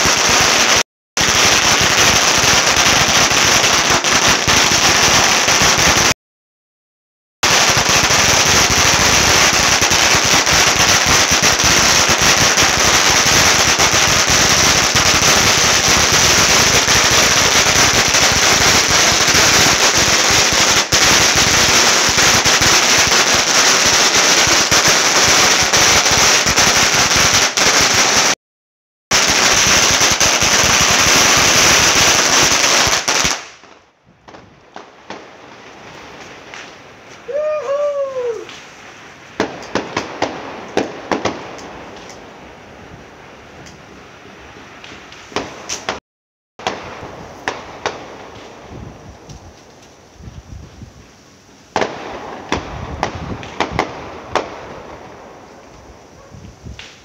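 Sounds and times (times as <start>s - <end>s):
firecrackers crackling: 0.0s - 6.2s, 7.4s - 28.4s, 29.1s - 43.8s, 44.5s - 46.0s, 46.6s - 57.0s.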